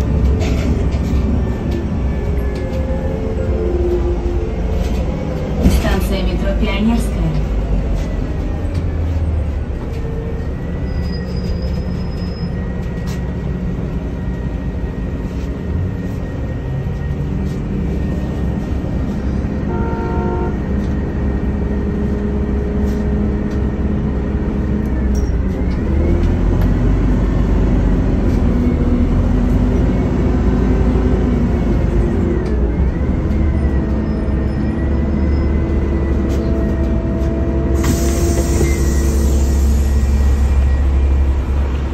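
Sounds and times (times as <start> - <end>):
bus and traffic engines: 0.0 - 41.9
brief horn-like tone: 19.7 - 20.6.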